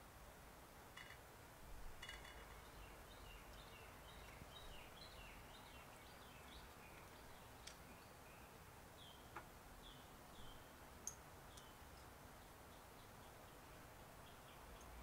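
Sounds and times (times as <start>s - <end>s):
low hiss: 0.0s - 15.0s
light ringing clinks: 2.0s - 2.8s
faint bird chirps: 2.0s - 15.0s.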